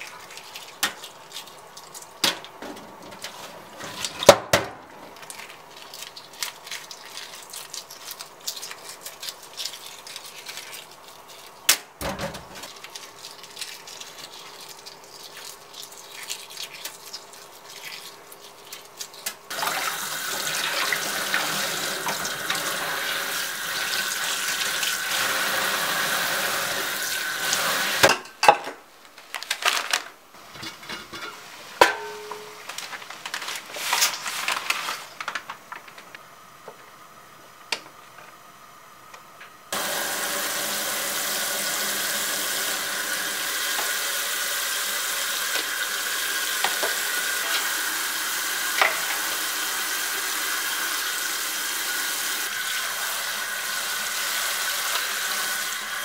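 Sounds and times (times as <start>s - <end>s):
tap water running into sink: 19.5s - 28.0s, 39.8s - 56.0s.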